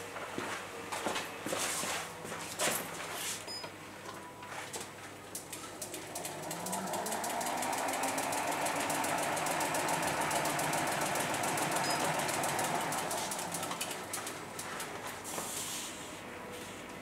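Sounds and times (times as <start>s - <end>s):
bike wheel spinning whir: 5.7s - 15.4s.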